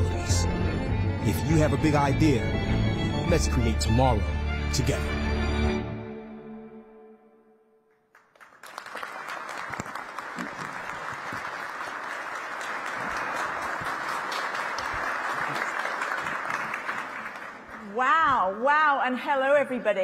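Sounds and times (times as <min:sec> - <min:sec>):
background music chord: 0:00.0 - 0:07.9
audience applauding: 0:08.1 - 0:18.0.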